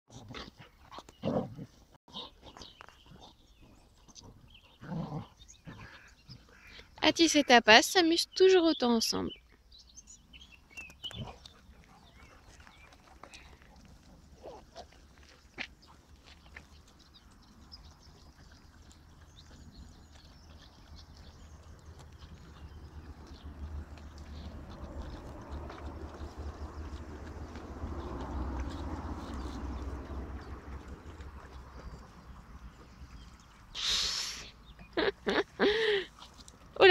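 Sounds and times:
dogs play-fighting: 11.0s - 33.6s.

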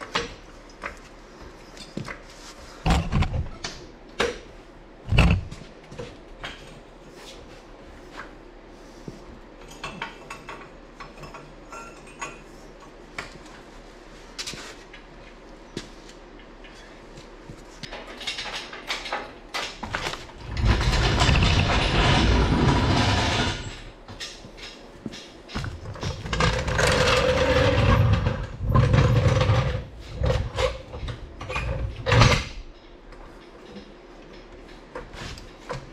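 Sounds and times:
casters rolling on concrete: 19.8s - 23.9s, 25.0s - 30.3s.

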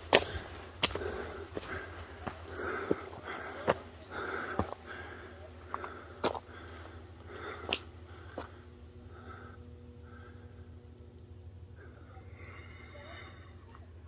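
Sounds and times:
footsteps on gravel: 0.0s - 8.6s.

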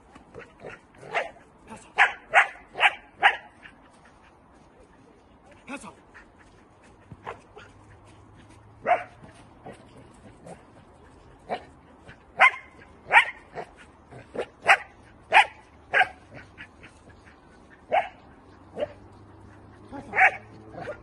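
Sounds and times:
puppy barking: 0.4s - 1.4s, 2.0s - 3.7s, 8.8s - 9.4s, 12.4s - 16.8s, 17.8s - 19.1s, 19.8s - 21.0s.

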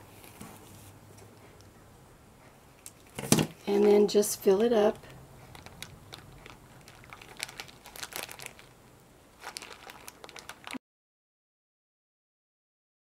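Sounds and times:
plastic bag crinkling: 4.9s - 10.8s.

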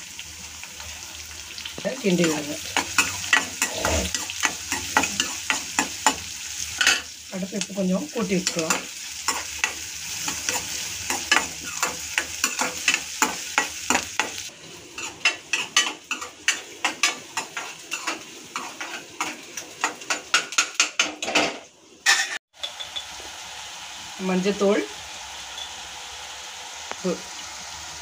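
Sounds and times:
onions sizzling in hot oil: 0.0s - 28.0s
steel ladle scraping a pan: 2.2s - 5.9s.

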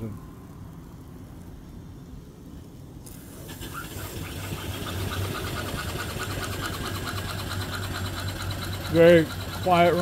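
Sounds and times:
steam hissing: 3.0s - 10.0s
steam engine mechanical beat: 3.5s - 10.0s.

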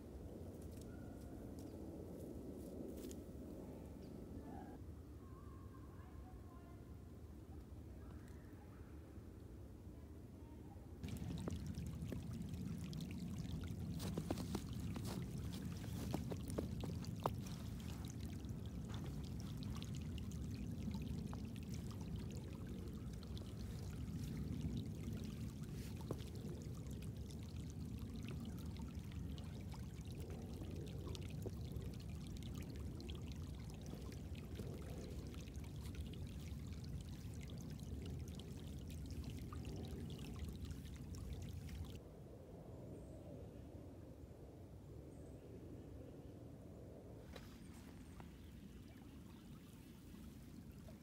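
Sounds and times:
creek water rushing: 11.0s - 42.0s.

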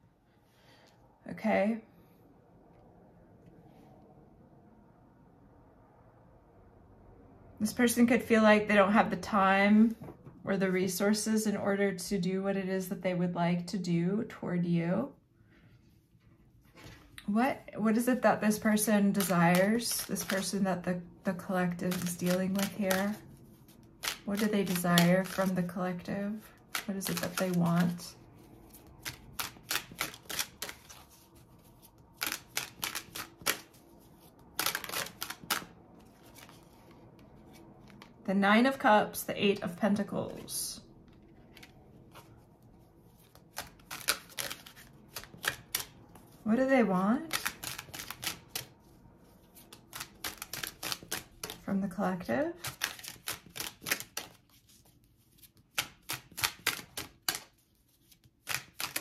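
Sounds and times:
cards being shuffled: 17.9s - 38.2s, 40.0s - 46.4s, 47.2s - 51.7s, 52.6s - 59.0s.

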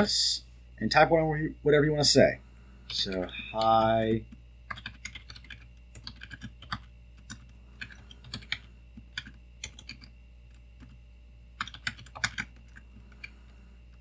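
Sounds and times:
keyboard typing: 2.9s - 11.0s, 11.6s - 14.0s.

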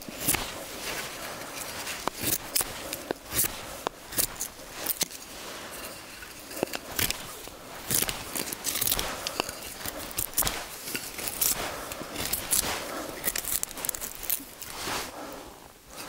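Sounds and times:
knife carving wood: 0.0s - 15.2s.

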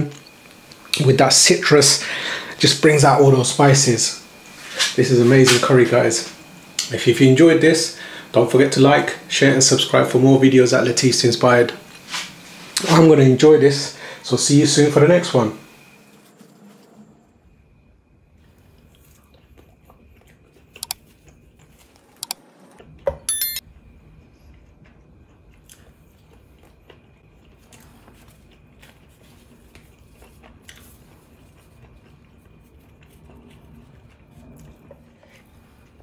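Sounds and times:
person chewing: 18.9s - 22.0s, 24.8s - 36.0s.

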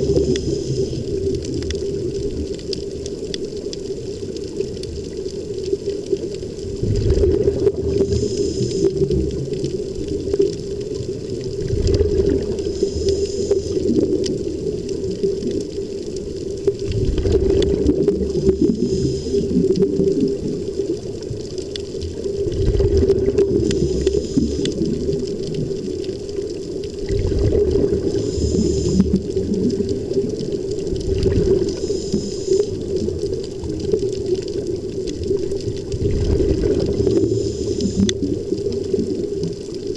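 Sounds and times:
underwater bubbling: 0.0s - 39.9s
pumped air drone: 8.1s - 8.9s, 12.7s - 13.8s, 28.0s - 29.2s, 31.8s - 32.7s, 37.1s - 38.1s.

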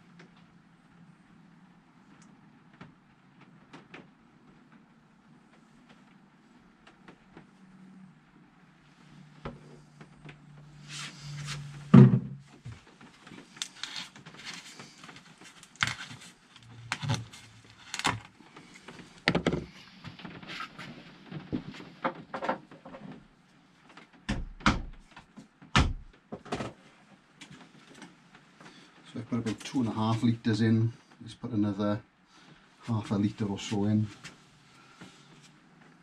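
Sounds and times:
thump: 11.9s - 12.4s
plastic bottles knocking and clattering: 19.2s - 19.7s.

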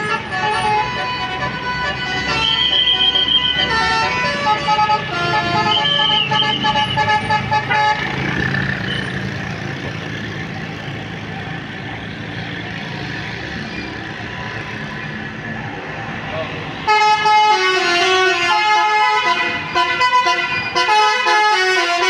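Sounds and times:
multi-tone bus horn tune: 0.0s - 8.4s, 16.8s - 22.0s.

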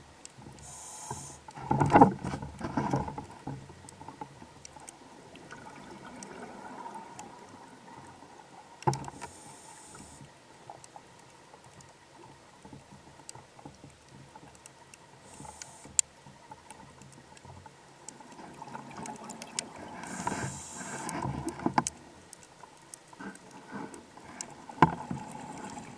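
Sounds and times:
regulator breathing hiss: 0.6s - 1.5s, 9.2s - 10.2s, 15.2s - 16.0s, 20.0s - 21.2s.

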